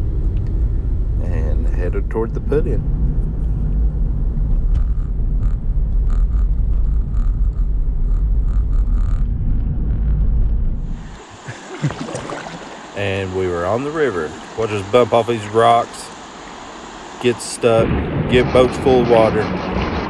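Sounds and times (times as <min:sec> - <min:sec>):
car driving rumble inside cabin: 0:00.0 - 0:11.2
river water hissing around kayak: 0:10.9 - 0:17.8.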